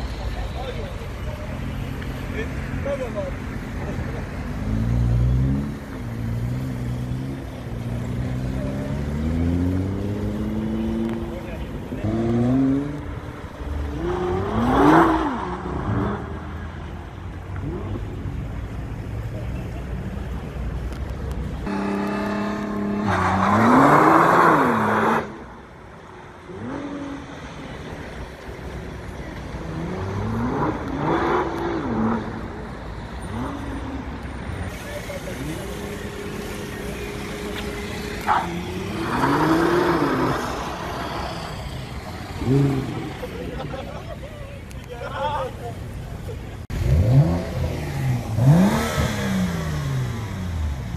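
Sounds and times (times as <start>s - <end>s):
car engine pulling away: 26.4s - 44.2s, 46.2s - 50.9s.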